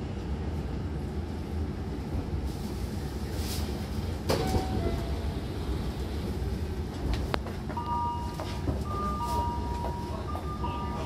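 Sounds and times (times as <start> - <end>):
low train hum: 0.0 - 11.0
train doors clunking open: 3.6 - 6.2, 6.8 - 11.0.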